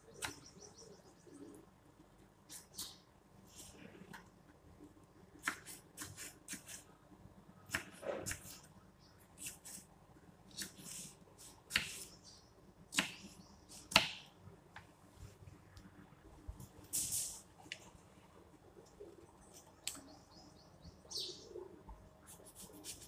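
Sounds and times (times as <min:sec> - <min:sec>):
knife cutting cucumber on wooden board: 0:05.4 - 0:06.8, 0:07.7 - 0:08.7, 0:10.5 - 0:12.1, 0:12.9 - 0:14.2, 0:22.3 - 0:23.0.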